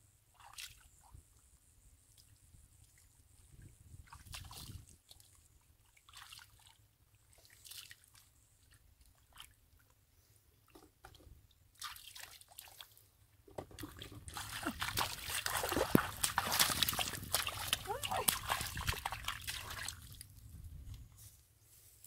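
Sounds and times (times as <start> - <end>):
small splashes in muddy water: 0.3 - 1.2, 3.6 - 9.9, 11.7 - 13.1, 13.8 - 20.4.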